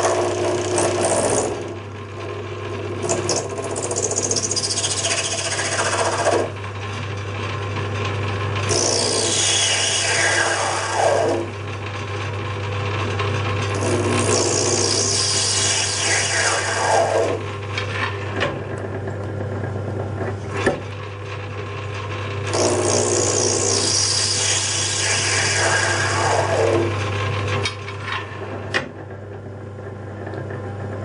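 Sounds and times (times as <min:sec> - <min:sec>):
lathe humming: 0:00.0 - 0:31.0
lathe cutting metal scraping: 0:02.9 - 0:06.6, 0:08.1 - 0:12.7, 0:13.5 - 0:18.4, 0:22.0 - 0:28.6.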